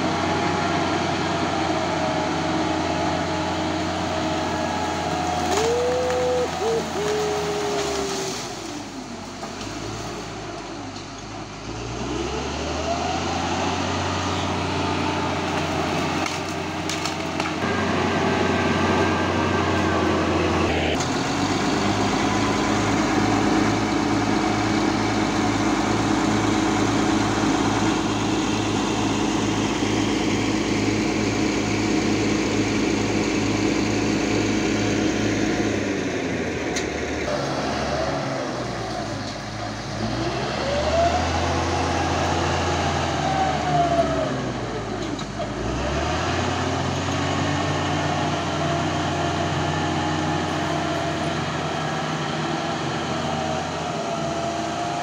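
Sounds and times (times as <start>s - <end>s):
bulldozer diesel engine under load: 0.0s - 55.0s.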